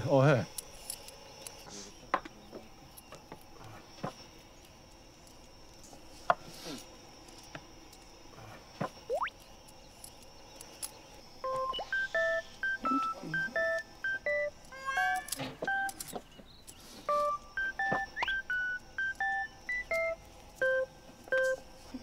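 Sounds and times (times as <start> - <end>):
playful electronic beeping music: 9.1 - 9.3, 11.4 - 15.9, 17.1 - 21.6.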